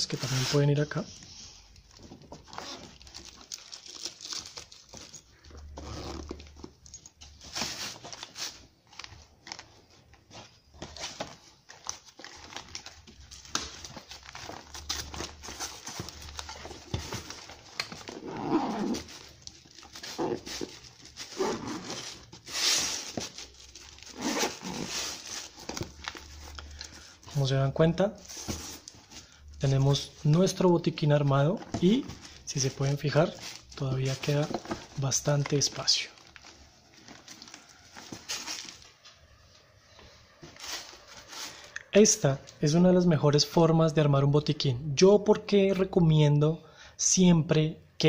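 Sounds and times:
fabric pouch rustling and scraping: 0:15.0 - 0:25.9
zipper strokes: 0:18.2 - 0:19.1, 0:21.4 - 0:22.0, 0:24.1 - 0:25.1.

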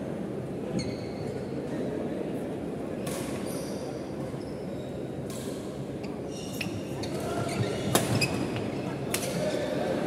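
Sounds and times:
murmur of the hall: 0:00.0 - 0:10.0
shoe squeaks on wooden court: 0:07.4 - 0:08.6.

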